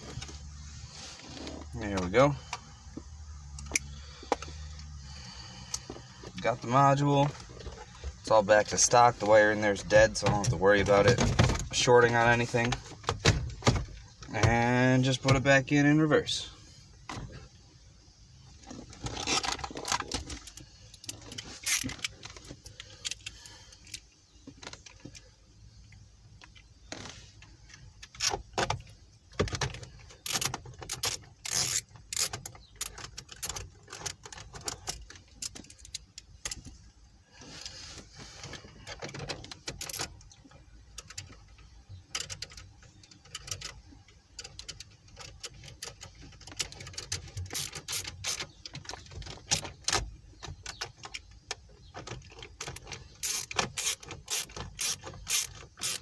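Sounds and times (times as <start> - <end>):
socket ratchet clicking: 30.2 - 33.6, 39.8 - 40.1, 47.0 - 48.4, 52.6 - 56.0.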